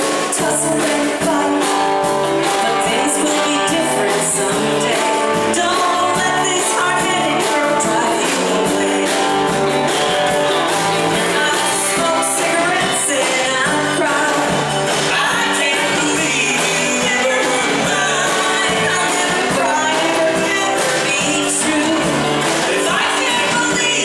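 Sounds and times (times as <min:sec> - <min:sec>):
woman singing: 0:00.0 - 0:09.6, 0:11.1 - 0:24.0
drums: 0:00.0 - 0:24.0
electric guitar: 0:00.0 - 0:24.0.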